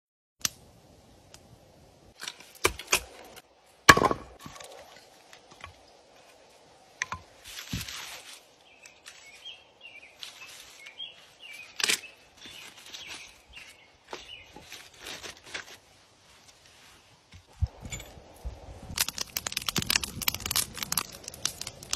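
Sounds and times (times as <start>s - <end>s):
rustling: 7.3s - 18.3s.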